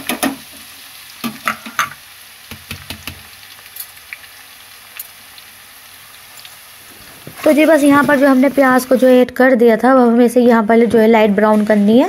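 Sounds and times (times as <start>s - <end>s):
onions sizzling in hot oil: 0.0s - 9.3s
sharp knocks and pops: 2.5s - 3.3s.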